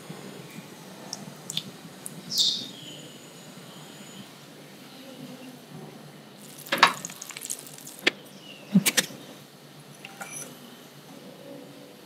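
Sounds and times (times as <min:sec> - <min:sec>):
utensils clicking on a pan: 0:06.5 - 0:08.1.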